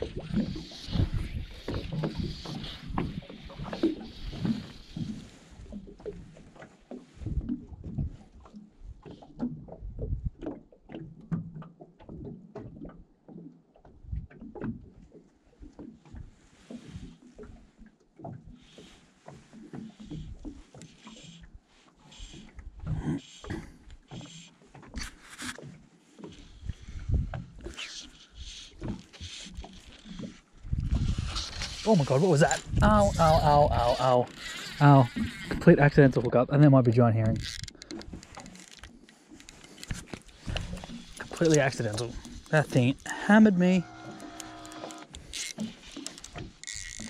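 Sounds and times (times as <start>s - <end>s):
water lapping against boat hull: 0.0s - 47.0s
fly reel clicking: 31.2s - 35.6s, 37.4s - 43.1s, 43.8s - 47.0s.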